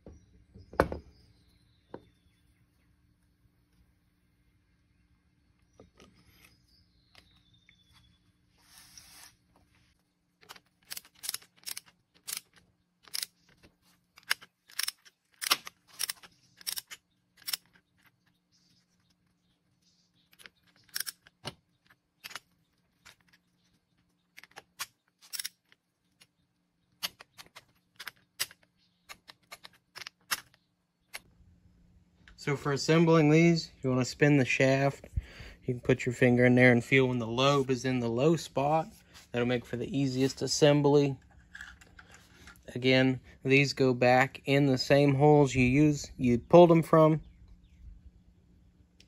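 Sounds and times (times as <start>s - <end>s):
metallic clicks of hand tools: 10.4s - 13.4s, 14.2s - 17.8s, 24.4s - 25.8s.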